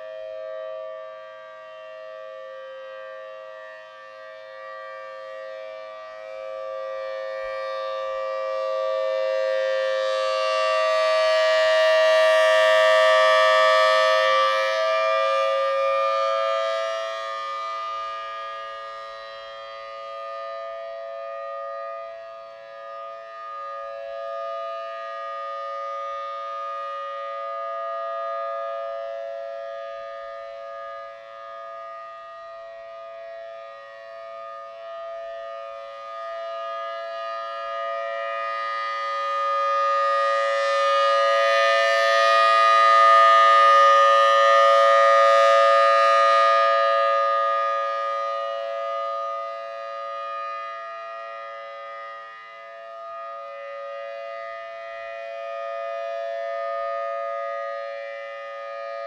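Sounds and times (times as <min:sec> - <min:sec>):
rotating warning siren steady tone: 0:00.0 - 0:59.0.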